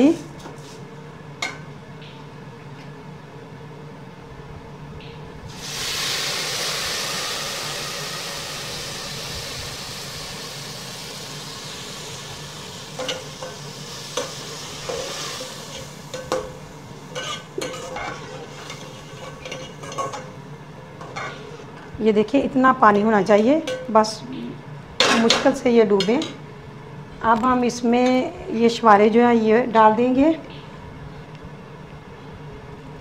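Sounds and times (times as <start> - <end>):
loud sizzle of water in hot oil: 5.5 - 17.2.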